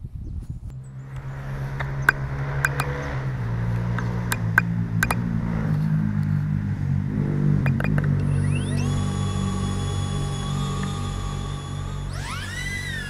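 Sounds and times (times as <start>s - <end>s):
drone motors humming: 0.7s - 13.0s
sharp ticks: 1.1s - 3.2s, 3.8s - 5.2s, 7.6s - 8.8s.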